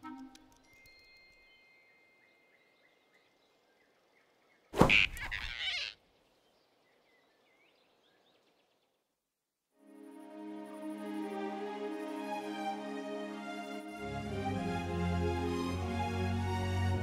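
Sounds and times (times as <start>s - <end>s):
faint birdsong: 1.5s - 9.2s.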